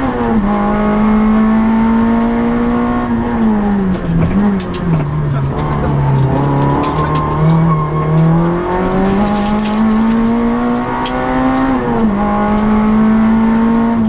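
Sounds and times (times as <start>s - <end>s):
car engine accelerating: 0.0s - 14.0s.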